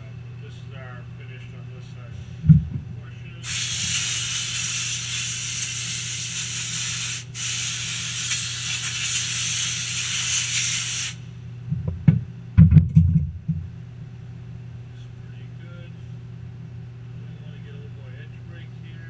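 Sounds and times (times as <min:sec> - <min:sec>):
low machine hum: 0:00.0 - 0:19.0
air blow gun hissing: 0:03.4 - 0:11.3.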